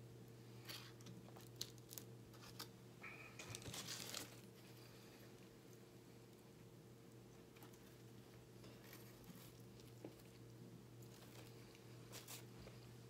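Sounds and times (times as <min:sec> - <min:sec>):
foil wrapper crinkling: 0:00.7 - 0:02.7, 0:03.4 - 0:04.6.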